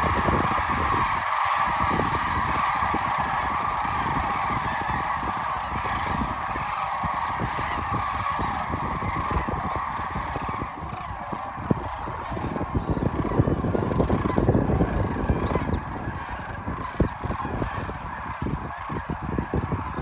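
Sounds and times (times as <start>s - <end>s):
flock of cranes calling: 0.0s - 20.0s
low gusty rumble: 0.0s - 20.0s.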